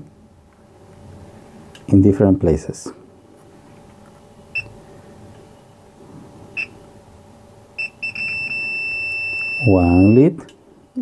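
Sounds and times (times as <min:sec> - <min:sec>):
multimeter beeping: 0:04.5 - 0:04.7, 0:07.8 - 0:10.5.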